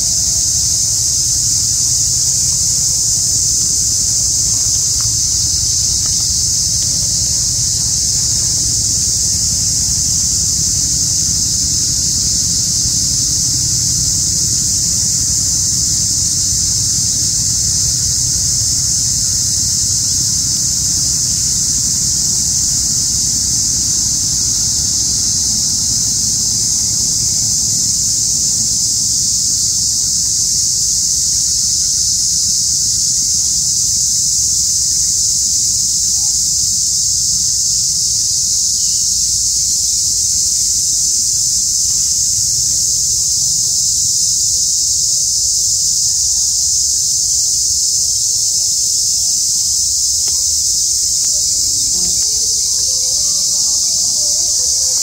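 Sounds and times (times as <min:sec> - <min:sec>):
insects droning: 0:00.0 - 0:55.0
wind rumbling on microphone: 0:00.0 - 0:55.0.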